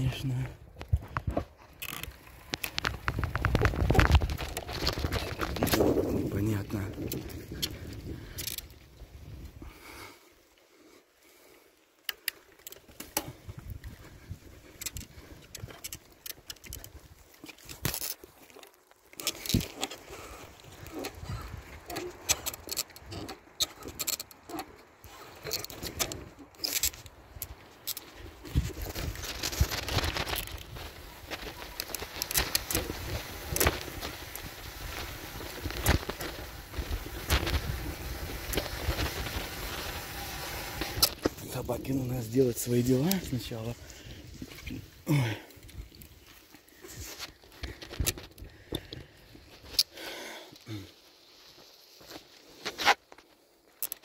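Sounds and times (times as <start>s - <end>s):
bicycle clicks and rattling: 0.8s - 10.0s, 12.0s - 41.4s, 42.9s - 50.7s, 51.5s - 54.0s
tyre rumble on dirt: 2.4s - 8.2s
wind buffeting microphone: 2.8s - 8.4s, 20.7s - 21.9s, 32.2s - 42.1s
tyres rumbling on dirt: 28.5s - 43.8s.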